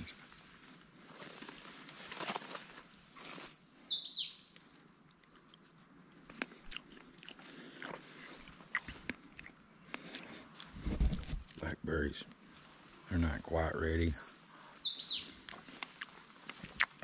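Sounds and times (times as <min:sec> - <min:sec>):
songbird whistling: 0:02.8 - 0:04.5, 0:14.0 - 0:15.3.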